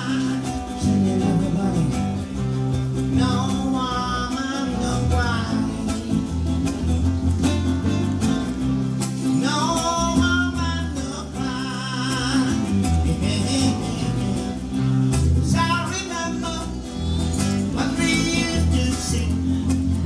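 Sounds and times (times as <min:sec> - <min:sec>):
person singing: 0:00.0 - 0:06.8
acoustic guitars: 0:00.0 - 0:20.0
electric bass guitar: 0:00.0 - 0:20.0.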